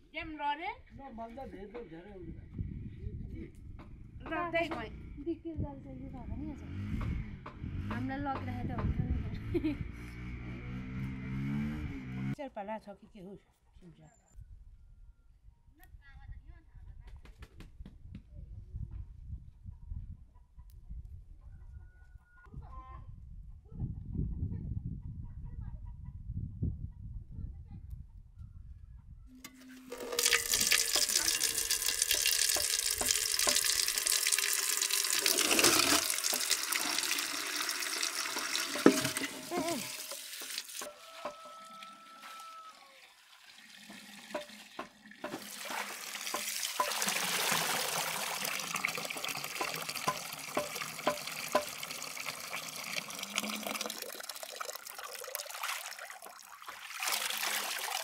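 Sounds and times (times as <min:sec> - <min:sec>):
running water splashing: 0:29.9 - 0:40.9, 0:42.9 - 0:58.0.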